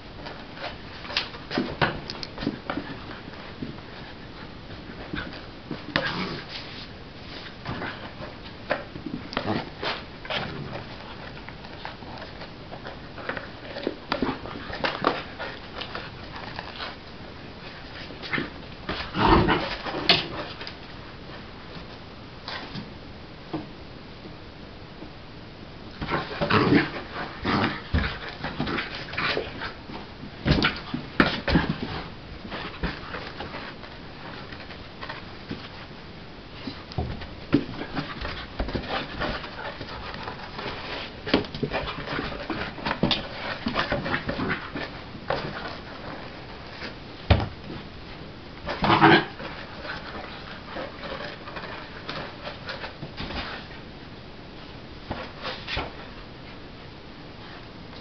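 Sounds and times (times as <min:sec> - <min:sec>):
ball bumping on floor: 0:36.7 - 0:47.9.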